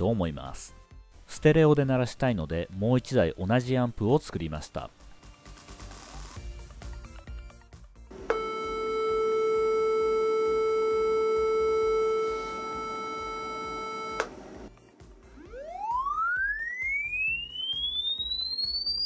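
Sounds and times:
sine test tone: 8.2 - 14.2, 15.3 - 19.0.

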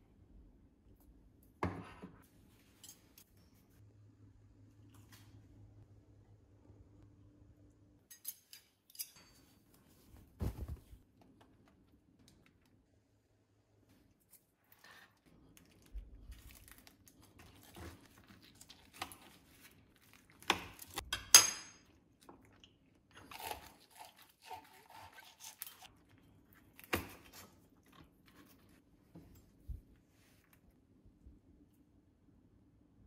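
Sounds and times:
crisp chicken skin crunching: 15.6 - 21.0.

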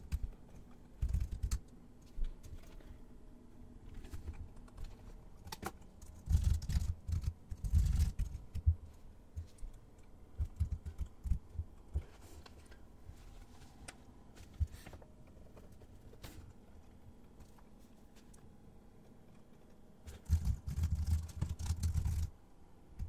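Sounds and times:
typing on a computer keyboard: 0.0 - 1.8, 4.5 - 8.8, 10.4 - 11.9, 20.1 - 22.3.

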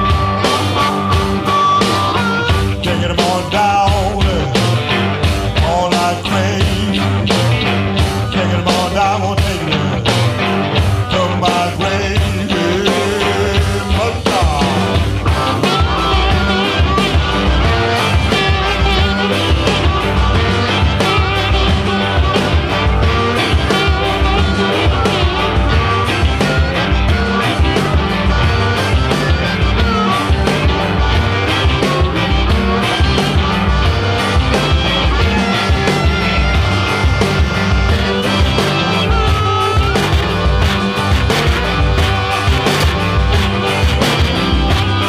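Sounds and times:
distorted electric guitar: 0.0 - 45.0
driving drum beat: 0.0 - 45.0.

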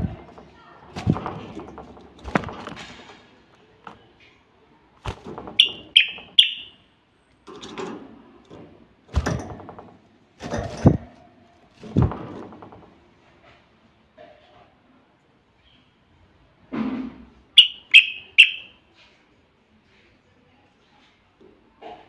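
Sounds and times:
wings flapping: 0.0 - 3.2
cage knocks and thuds: 0.0 - 4.0, 5.0 - 6.4, 7.5 - 11.2, 11.8 - 13.1
bird chirping: 5.4 - 6.9, 17.6 - 18.8.

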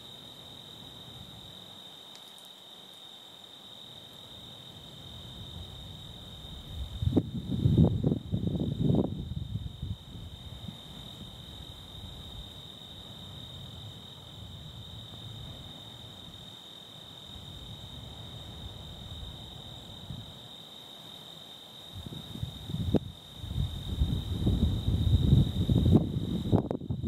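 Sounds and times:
crickets chirping: 0.0 - 27.0.

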